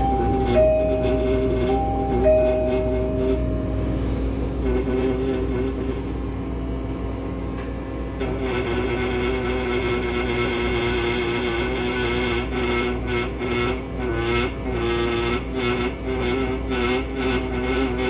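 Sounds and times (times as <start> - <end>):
soft background music: 0.0 - 3.9
vacuum running: 0.0 - 18.0.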